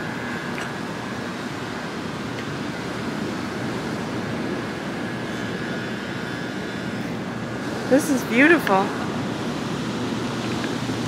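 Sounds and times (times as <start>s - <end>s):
ocean surf: 0.0s - 11.0s
wind: 0.0s - 11.0s.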